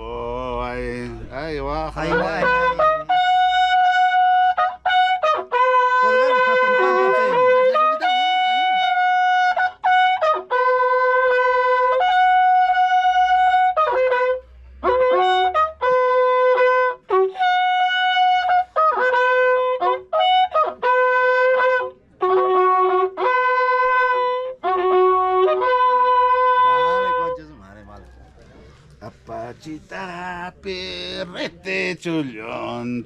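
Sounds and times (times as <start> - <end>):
horn playing long notes: 2.0 - 27.4.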